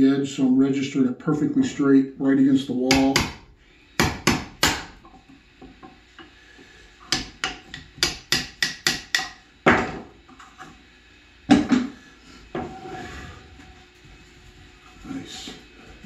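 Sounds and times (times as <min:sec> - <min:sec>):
hammer striking chisel: 0:02.9 - 0:03.4, 0:04.0 - 0:05.0, 0:07.1 - 0:10.0
board scraping: 0:12.6 - 0:15.6.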